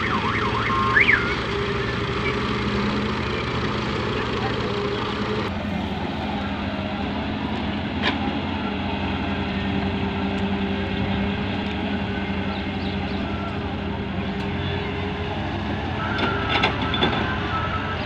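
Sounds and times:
excavator engine digging: 0.0 - 18.0
tractors idling: 0.0 - 18.0.

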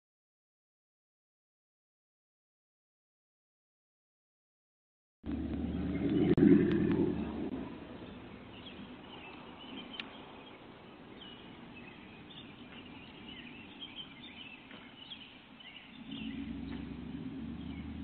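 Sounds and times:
faint low rumble: 5.3 - 18.0
vehicle engine humming: 5.3 - 18.0
bird chirps: 5.6 - 18.0.

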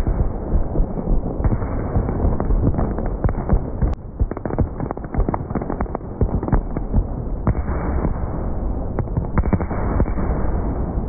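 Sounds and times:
fireworks bangs and pops: 0.0 - 11.0
low rumble: 0.0 - 11.0.

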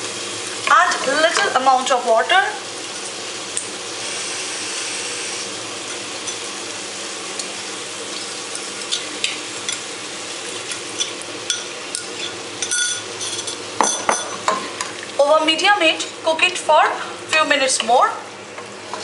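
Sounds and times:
vegetables sizzling in oil: 0.0 - 19.0
spoon and bowl scraping pot: 10.7 - 14.9.

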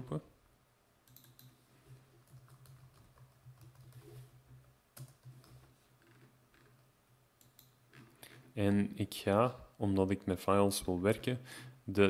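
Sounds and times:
keyboard typing: 1.0 - 1.6, 2.2 - 5.7.

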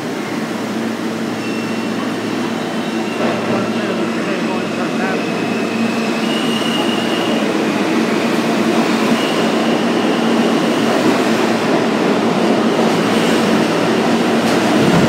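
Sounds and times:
subway train rumbling past: 0.0 - 15.0.

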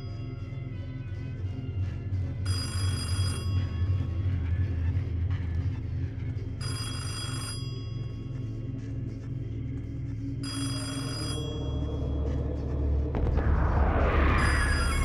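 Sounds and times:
low droning music: 0.0 - 15.0
telephone bell ringing: 2.5 - 3.8, 6.6 - 8.1, 10.4 - 11.9.

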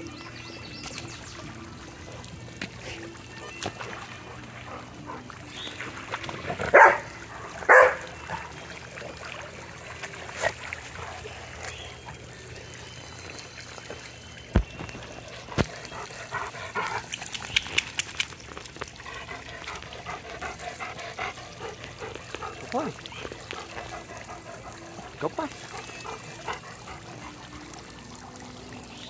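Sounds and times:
sprinkler water spraying: 5.5 - 29.0
dog barking: 6.7 - 7.1, 7.7 - 8.1.

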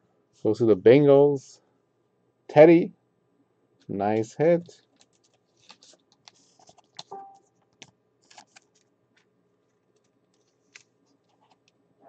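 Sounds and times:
trading cards clicking and rustling: 4.1 - 8.9.

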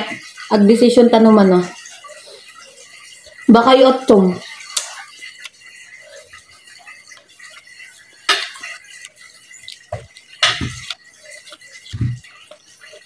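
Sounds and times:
cutlery clinking against a bowl: 8.2 - 13.0.

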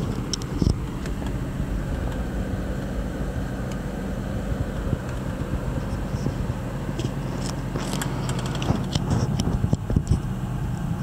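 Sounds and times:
car engine idling: 0.0 - 11.0
sharp clicks and scrapes: 5.0 - 10.3.

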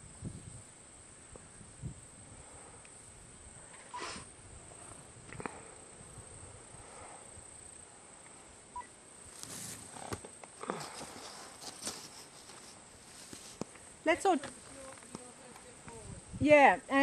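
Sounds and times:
soft knocks and rustles: 9.4 - 13.7.

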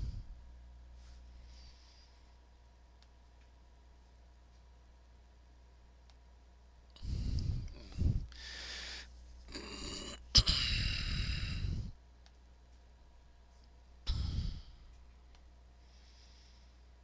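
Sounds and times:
person sighing and breathing out: 7.0 - 11.9, 14.1 - 14.9.

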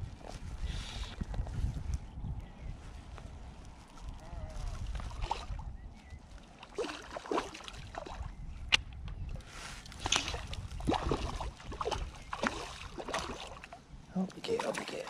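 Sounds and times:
wind rumbling on microphone: 0.0 - 14.8
water splashing and sloshing: 3.6 - 15.0.

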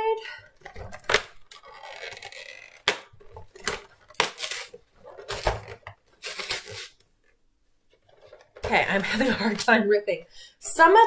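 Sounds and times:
cardboard tearing: 0.6 - 7.0.

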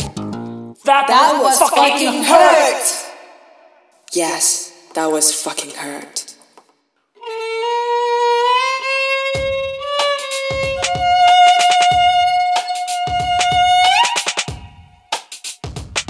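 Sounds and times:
violin long held notes: 7.2 - 14.2.

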